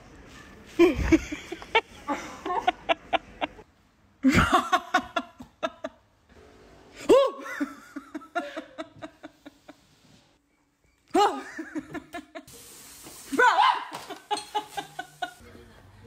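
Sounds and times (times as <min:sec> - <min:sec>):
women laughing: 0:00.7 - 0:03.6, 0:04.2 - 0:06.0, 0:07.0 - 0:09.9, 0:11.1 - 0:12.5, 0:13.6 - 0:15.8
women screaming: 0:13.3 - 0:14.1.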